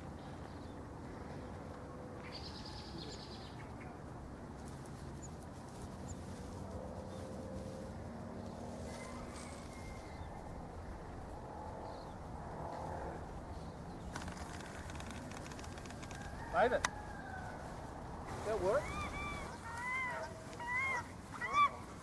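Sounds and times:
distant bird calls: 8.4s - 22.0s.

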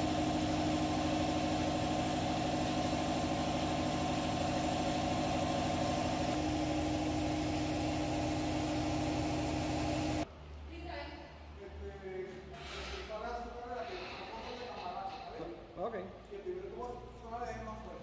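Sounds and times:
air compressor motor running: 0.0s - 10.2s.

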